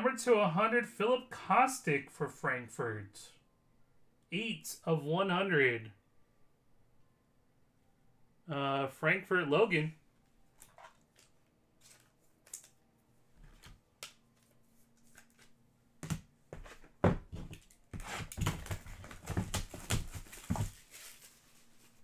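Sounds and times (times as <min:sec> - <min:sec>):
foil wrapper crinkling: 0:18.4 - 0:22.0.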